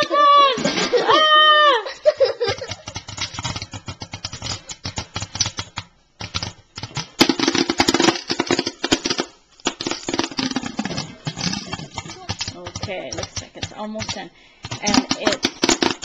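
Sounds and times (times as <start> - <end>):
popcorn popping in a pot: 0.0 - 16.0.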